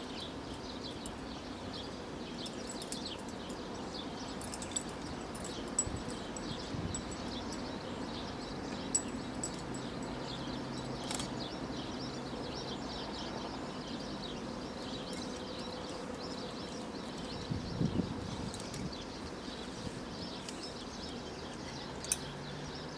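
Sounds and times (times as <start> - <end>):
outdoor background hiss: 0.0 - 22.9
small birds chirping: 0.0 - 22.9
sharp faint clicks: 10.9 - 11.4, 21.4 - 22.4.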